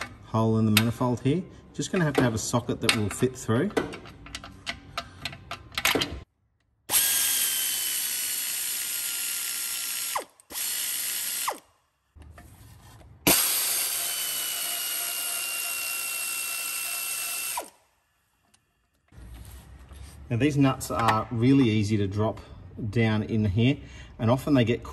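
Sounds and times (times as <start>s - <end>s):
air ratchet whirring: 6.9s - 11.7s, 13.3s - 17.8s.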